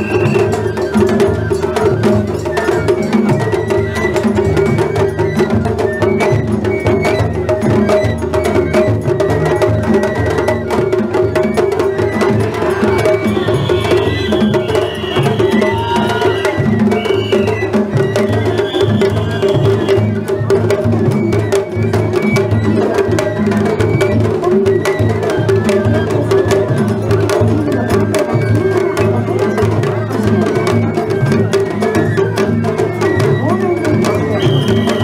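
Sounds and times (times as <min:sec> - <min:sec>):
high melody: 0:00.0 - 0:25.5
taiko drums beating: 0:00.0 - 0:35.0.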